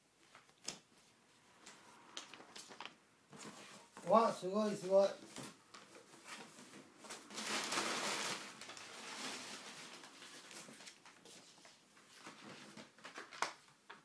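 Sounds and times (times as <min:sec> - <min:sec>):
packing paper rustling: 0:02.2 - 0:04.1, 0:05.2 - 0:14.0.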